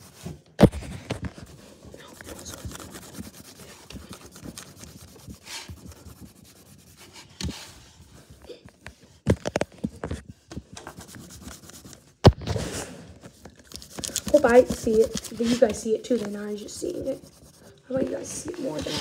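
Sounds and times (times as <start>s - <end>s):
colour scratching on paper: 0.0s - 8.3s, 10.8s - 12.1s, 13.6s - 19.0s.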